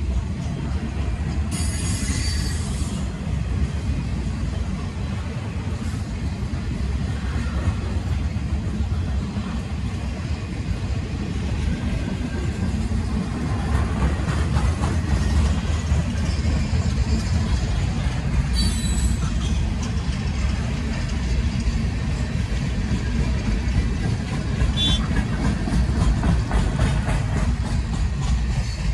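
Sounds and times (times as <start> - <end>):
train wheels rumbling on rail: 0.0 - 28.9
high-pitched wheel squeal: 1.6 - 2.9, 18.5 - 19.6.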